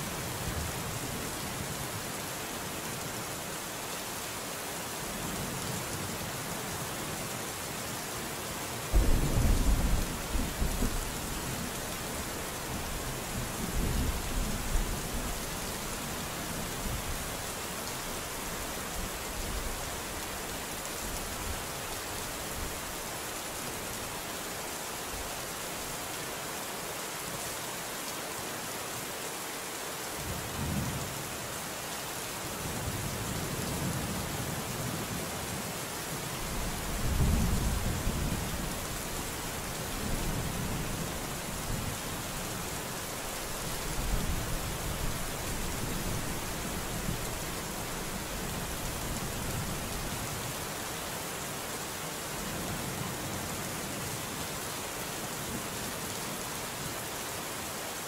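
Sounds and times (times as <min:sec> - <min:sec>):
thunder rumbling: 0:08.9 - 0:11.8
rain hissing: 0:08.9 - 0:24.2, 0:36.4 - 0:50.3.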